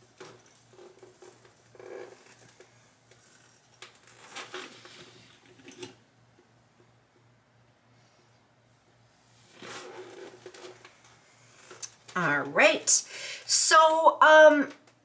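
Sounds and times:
rustling of clothing and hair: 0:00.0 - 0:05.8, 0:09.2 - 0:13.0.

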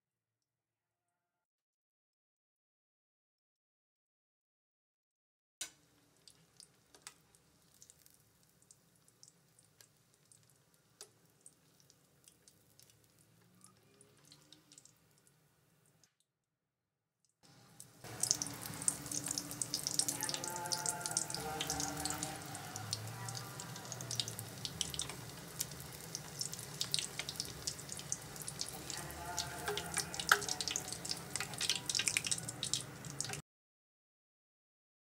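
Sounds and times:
food deep-frying in oil: 0:05.6 - 0:16.2, 0:17.5 - 0:33.4.

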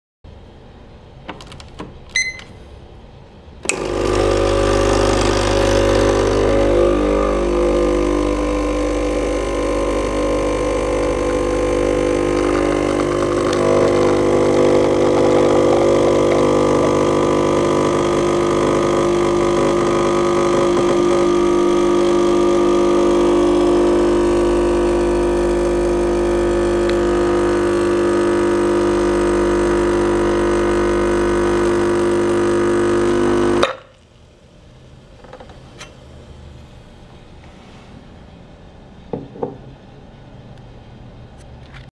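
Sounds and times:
short electronic beep: 0:02.2 - 0:02.6
espresso machine pump humming: 0:03.6 - 0:33.8.

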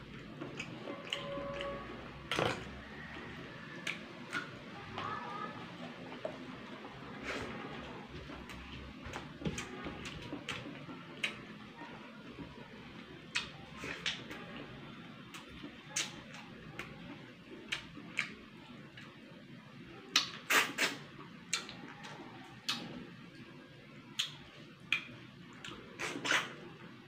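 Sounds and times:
wet sucking and lip smacks: 0:25.7 - 0:26.6.

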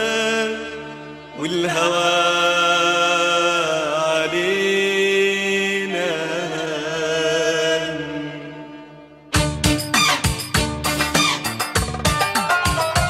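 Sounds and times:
pop music accompaniment: 0:09.3 - 0:13.0.

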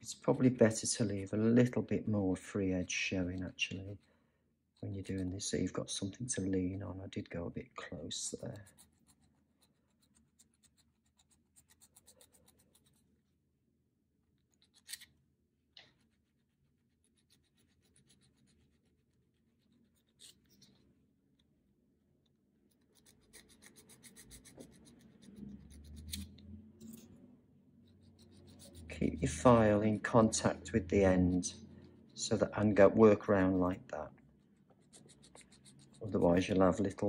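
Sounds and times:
nail file rasping on nails: 0:08.5 - 0:13.1, 0:14.4 - 0:15.1, 0:15.8 - 0:20.8, 0:22.7 - 0:27.0, 0:27.8 - 0:29.5, 0:34.6 - 0:36.5.

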